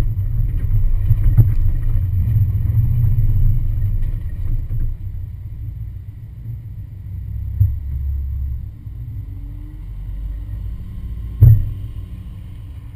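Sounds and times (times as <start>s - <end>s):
loud thump: 11.4s - 11.8s.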